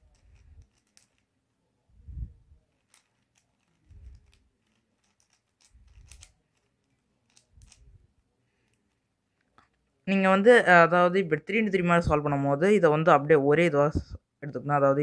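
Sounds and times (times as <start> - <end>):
puzzle cube clicking: 0.0 - 1.4, 2.7 - 8.0.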